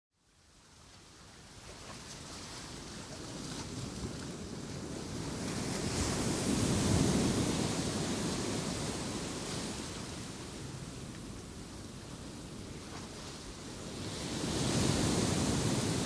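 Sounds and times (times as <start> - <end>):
sea waves rushing surf: 3.5 - 16.0.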